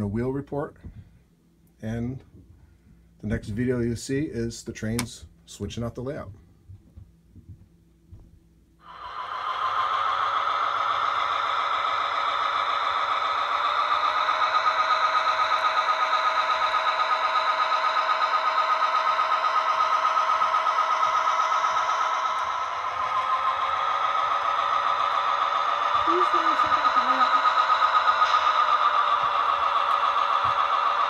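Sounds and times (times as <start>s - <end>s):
model locomotive engine sound: 0.0s - 6.4s, 8.7s - 31.0s.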